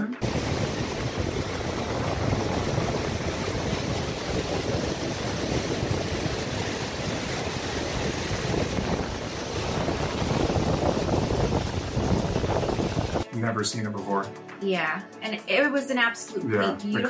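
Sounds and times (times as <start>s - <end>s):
wind on microphone: 0.0s - 13.2s.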